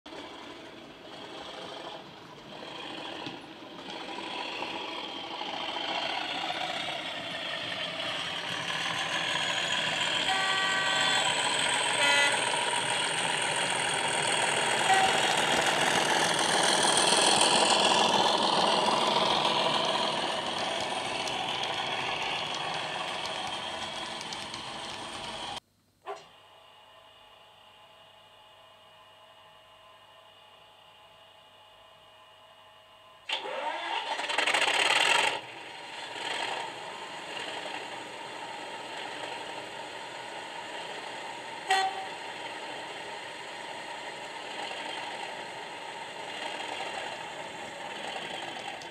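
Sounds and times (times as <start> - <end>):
diesel locomotive engine: 0.1 - 48.9
two-tone horn: 10.1 - 12.8, 14.8 - 15.6, 41.6 - 42.2
short horn toot: 10.3 - 11.4, 12.0 - 12.4, 14.8 - 15.3, 41.7 - 42.2.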